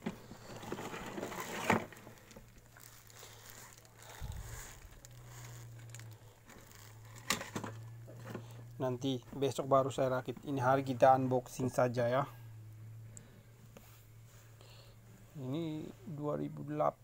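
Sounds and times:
plastic packaging crinkling: 0.0 - 8.6.

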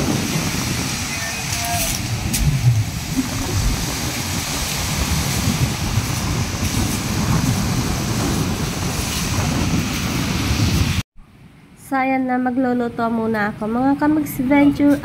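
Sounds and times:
wind buffeting microphone: 0.0 - 11.0
faint sea waves: 0.0 - 15.0.

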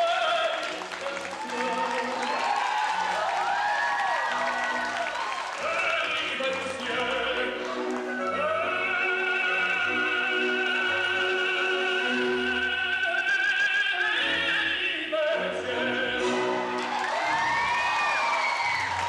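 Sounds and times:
operatic singing: 0.0 - 19.0
orchestral accompaniment: 5.7 - 17.9.

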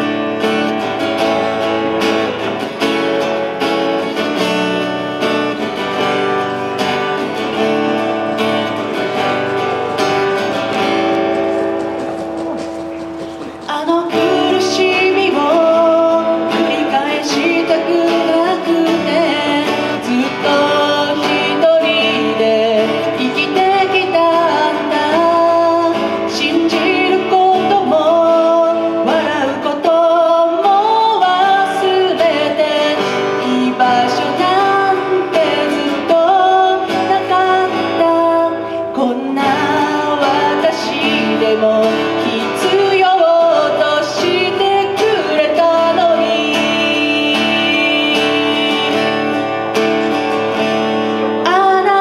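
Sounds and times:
strummed acoustic guitar: 0.0 - 52.0
woman singing: 13.4 - 50.1, 51.2 - 52.0.

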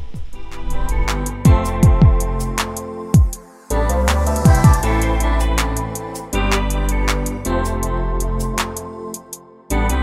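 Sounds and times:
deep bass drum hits: 4.5 - 4.9.

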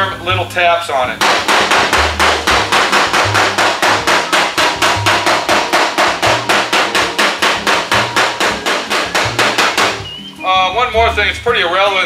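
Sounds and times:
hammer tapping sheet metal: 1.2 - 10.1.

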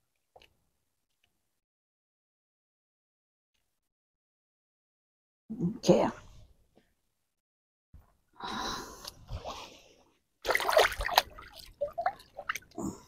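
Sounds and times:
water splashing and dribbling: 10.4 - 13.0.

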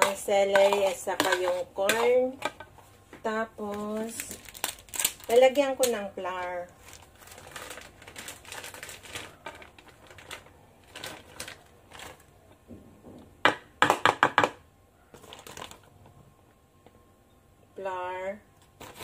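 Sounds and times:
paper packet crinkling: 3.7 - 12.3, 15.2 - 15.9, 18.7 - 19.0.

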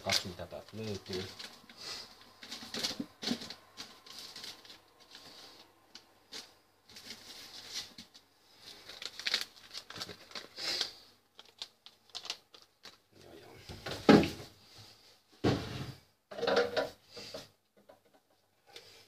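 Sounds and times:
rustling of packets: 0.0 - 14.1.

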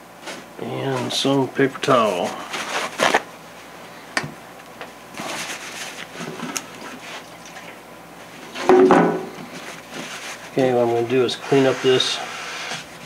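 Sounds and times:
paper towels rustling: 0.2 - 4.0, 5.1 - 7.5, 9.4 - 13.0.

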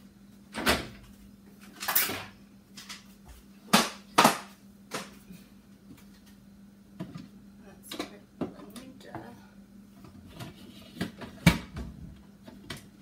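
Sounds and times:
kitchen things clattering in cupboards: 1.6 - 3.0.

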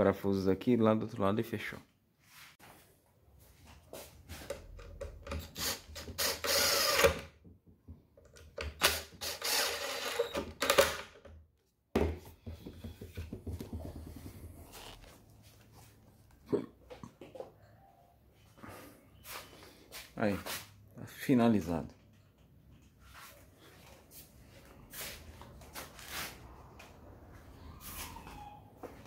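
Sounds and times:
cordless drill driving screws: 5.3 - 7.3, 8.7 - 11.0.

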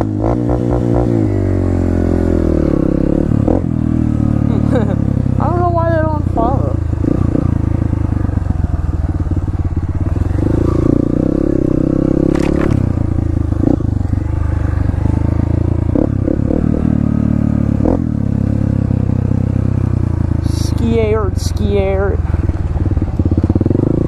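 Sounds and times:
dirt bike engine revving: 0.0 - 24.0
sharp clatter: 12.2 - 13.3.

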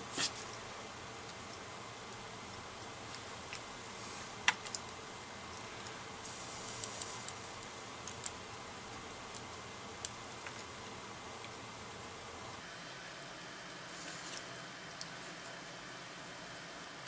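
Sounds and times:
soldering iron tip sizzling: 2.8 - 11.6, 13.6 - 17.0.

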